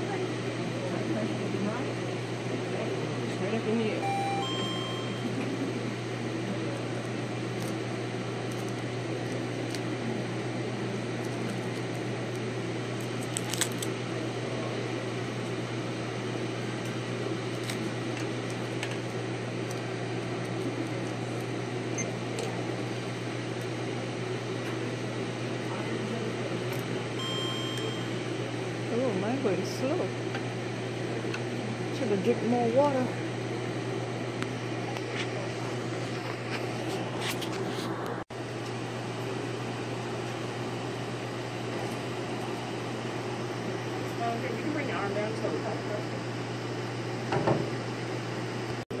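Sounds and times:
low mechanical hum: 0:00.0 - 0:49.0
short beep: 0:04.0 - 0:05.3, 0:27.2 - 0:28.2.

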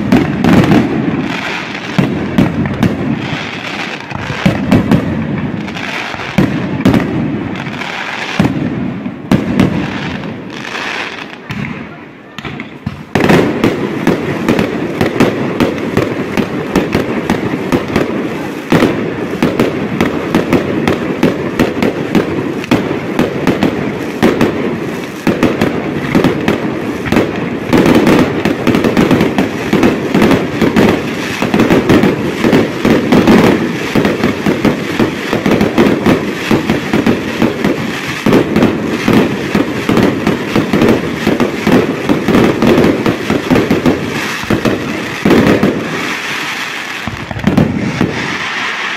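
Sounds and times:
fireworks bursting and crackling: 0:00.0 - 0:48.9.

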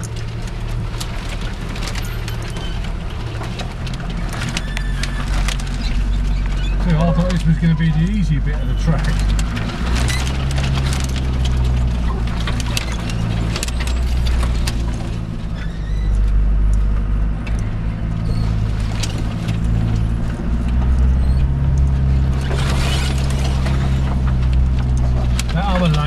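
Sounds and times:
diesel engine running: 0:00.0 - 0:26.0
vehicle clicks knocks and rattles: 0:00.0 - 0:26.0
rustling scrape: 0:22.1 - 0:25.6.

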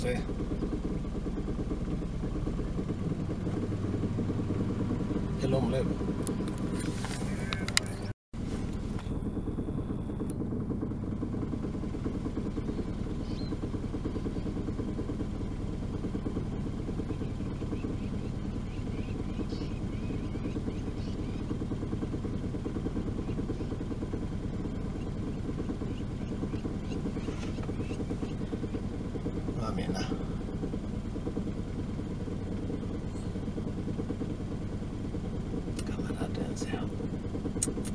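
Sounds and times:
engine idling: 0:00.0 - 0:37.9.

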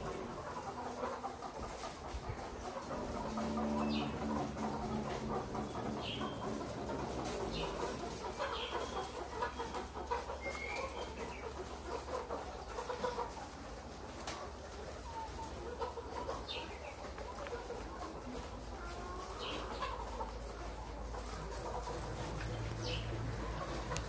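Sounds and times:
hens clucking: 0:00.0 - 0:24.0
low hum: 0:02.9 - 0:07.8.

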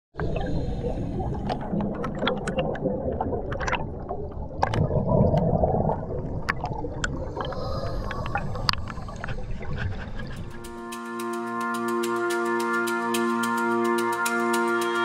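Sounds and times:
underwater air bubbles gurgling: 0:00.2 - 0:10.6
sharp clicks and pops: 0:01.4 - 0:05.6.

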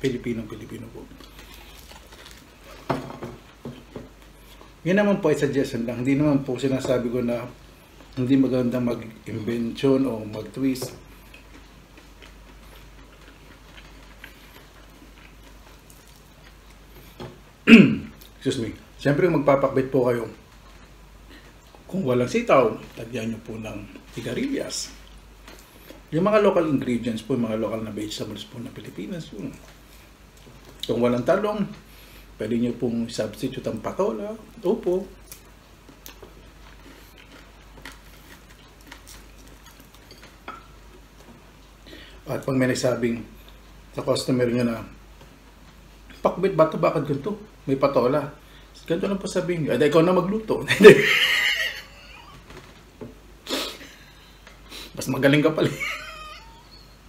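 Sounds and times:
chewing mouth clicks: 0:11.1 - 0:16.8.

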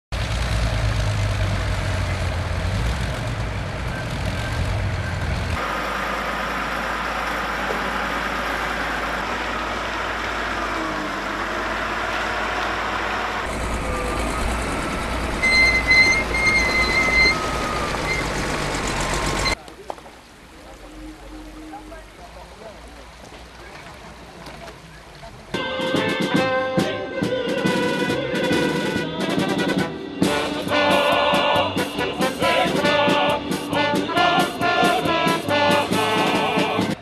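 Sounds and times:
heavy vehicle engines running: 0:00.1 - 0:37.0
short high steady tones: 0:15.4 - 0:18.4.

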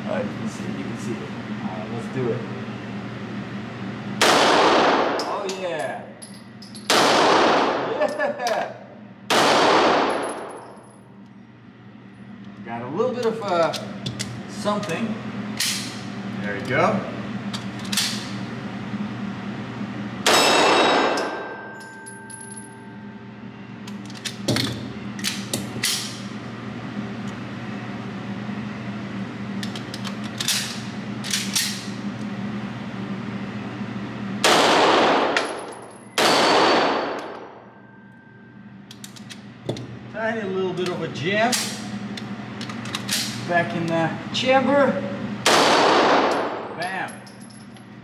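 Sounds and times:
pistol shots echoing: 0:04.2 - 0:05.2, 0:06.9 - 0:07.9, 0:09.3 - 0:10.4, 0:34.4 - 0:35.4, 0:36.2 - 0:37.2, 0:45.4 - 0:46.7.

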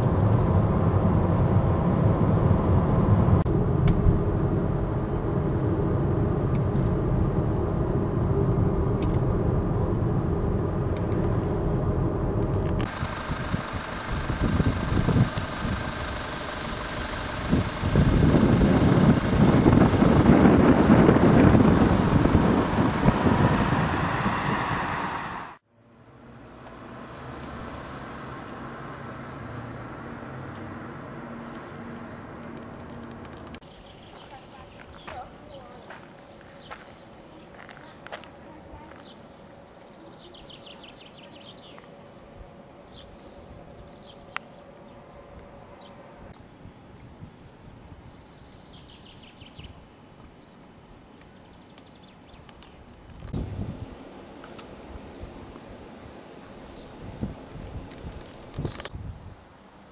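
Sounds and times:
wind buffeting microphone: 0:00.0 - 0:25.6, 0:53.0 - 0:55.5, 0:56.5 - 0:59.4
low rumble: 0:00.0 - 0:25.7
distant traffic hum: 0:00.0 - 0:59.9.

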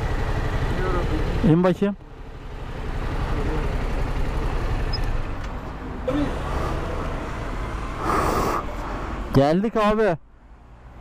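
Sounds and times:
motorcycle engine idling: 0:00.0 - 0:05.4
street noise: 0:00.0 - 0:11.0.

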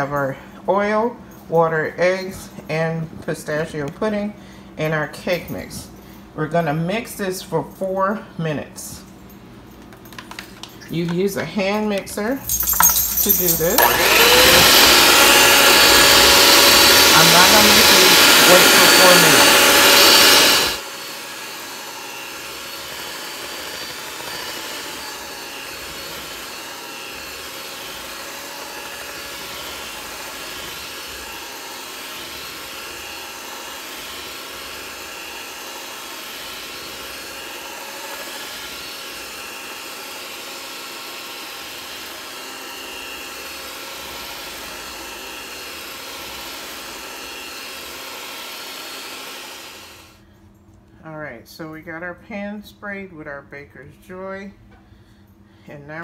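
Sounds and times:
electric hand mixer whining: 0:12.4 - 0:50.2.

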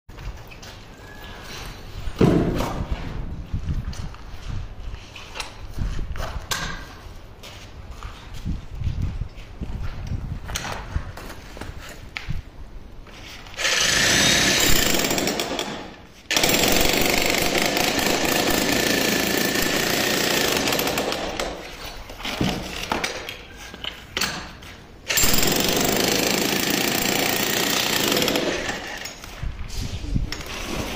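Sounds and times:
demolition hammer breaking concrete: 0:13.7 - 0:21.6, 0:25.1 - 0:29.1.

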